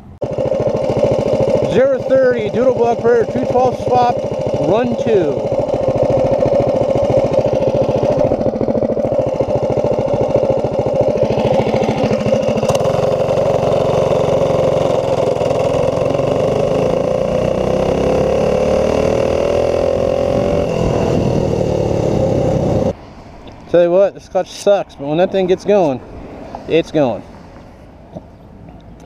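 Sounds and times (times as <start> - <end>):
mini bike engine revving: 0.2 - 23.0
wind noise: 20.0 - 23.0.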